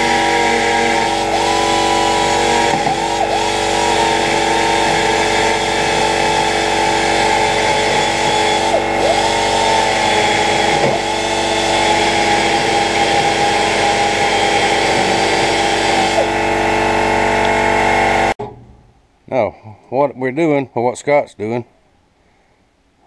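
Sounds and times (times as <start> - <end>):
power tool running on metal: 0.0 - 18.4.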